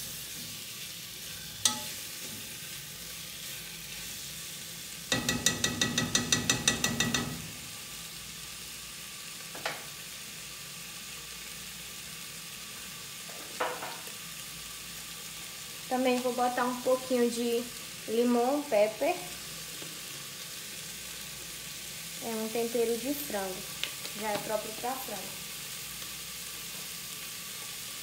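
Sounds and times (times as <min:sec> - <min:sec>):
chicken sizzling in a pot: 0:00.0 - 0:28.0
utensil knocking against pot: 0:05.1 - 0:07.5.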